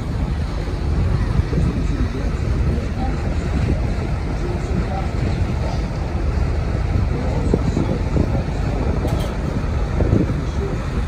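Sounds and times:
boat engine rumble: 0:00.0 - 0:11.0
water rushing along hull: 0:00.0 - 0:11.0
wind buffeting microphone: 0:00.0 - 0:11.0.

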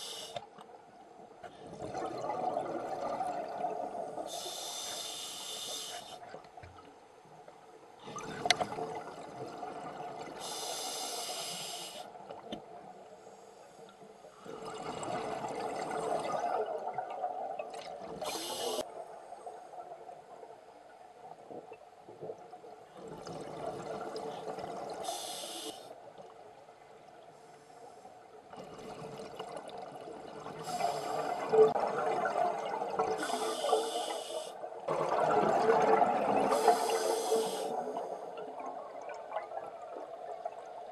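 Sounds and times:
regulator hissing inhale: 0:00.0 - 0:00.4, 0:04.3 - 0:06.2, 0:10.4 - 0:12.1, 0:18.2 - 0:18.9, 0:25.0 - 0:26.0, 0:30.6 - 0:31.5, 0:33.2 - 0:34.6, 0:36.5 - 0:38.0.

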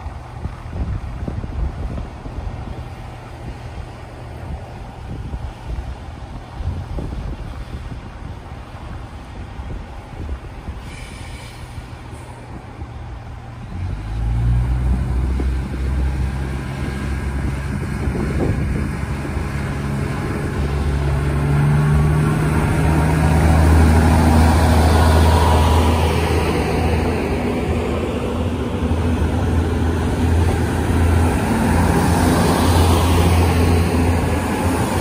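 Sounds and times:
diesel train engines throttling up: 0:00.0 - 0:35.0
train cars rolling past: 0:07.4 - 0:35.0.

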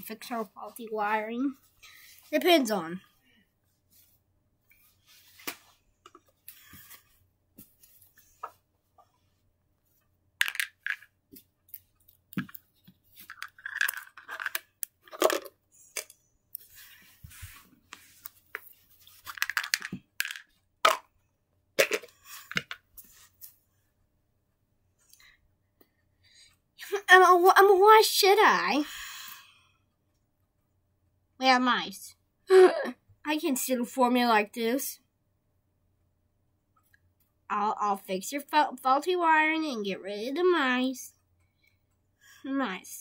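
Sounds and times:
toys and objects rustling and knocking: 0:09.9 - 0:21.2, 0:21.8 - 0:23.6.

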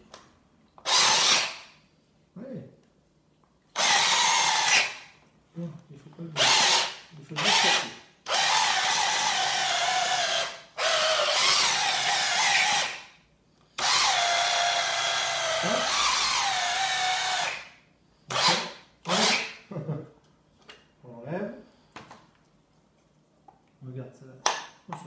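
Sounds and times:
mini chopper motor whining: 0:13.8 - 0:17.6.

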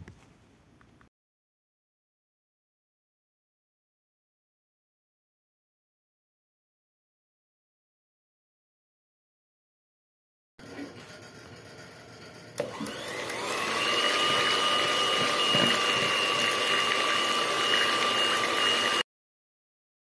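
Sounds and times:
electric hand mixer whining: 0:10.6 - 0:19.1.

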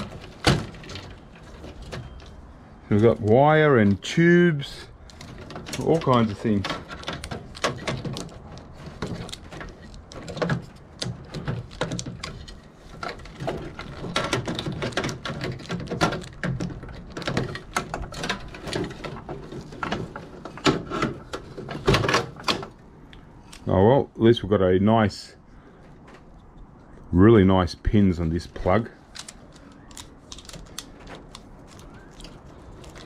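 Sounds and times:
machine parts knocking and rattling: 0:00.0 - 0:03.2, 0:04.9 - 0:22.8, 0:29.0 - 0:33.0.

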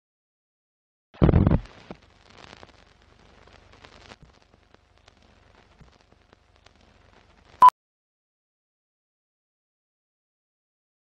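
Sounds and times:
scattered clicks and pops: 0:01.2 - 0:07.7
low hiss: 0:01.4 - 0:07.7
old film crackle: 0:01.6 - 0:07.6.

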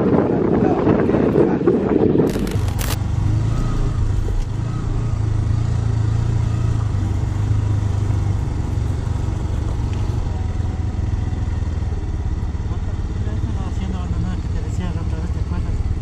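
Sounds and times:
motorcycle engine running: 0:02.3 - 0:03.2, 0:03.8 - 0:16.0.

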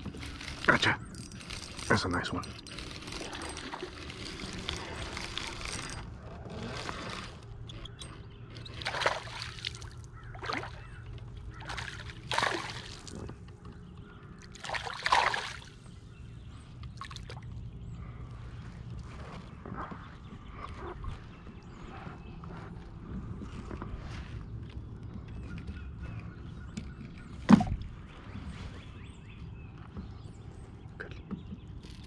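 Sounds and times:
fish splashing at surface: 0:08.8 - 0:10.8, 0:11.6 - 0:13.1, 0:14.6 - 0:15.7.

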